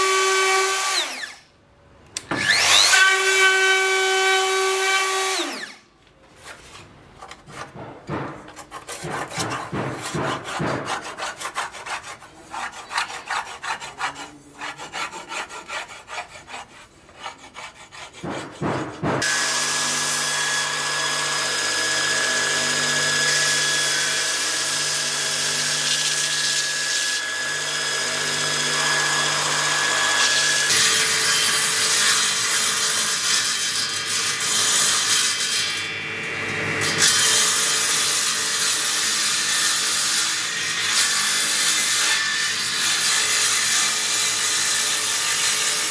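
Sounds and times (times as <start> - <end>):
wood and tools being handled: 6.0 - 15.1.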